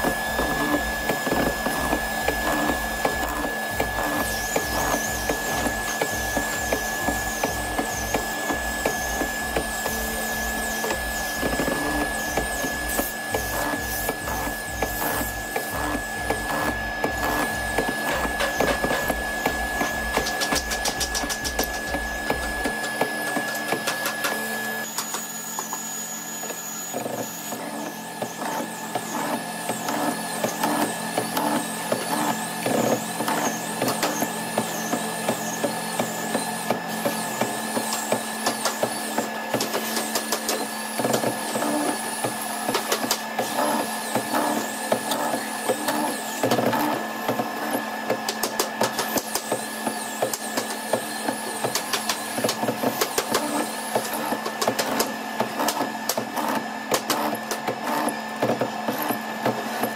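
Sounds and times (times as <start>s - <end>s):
cutter chattering through wood: 0.0s - 25.9s
mortising machine motor whine: 0.0s - 59.9s.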